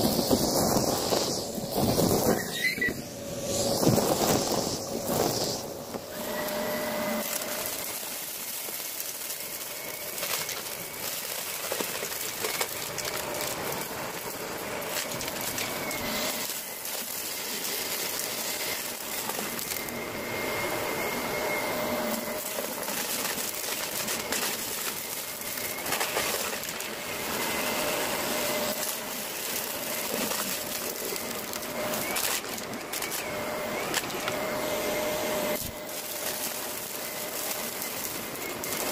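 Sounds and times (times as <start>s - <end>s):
handheld vacuum cleaner running: 0.0s - 38.9s
debris rattling up nozzle: 7.2s - 20.1s, 22.1s - 34.6s, 35.5s - 38.9s.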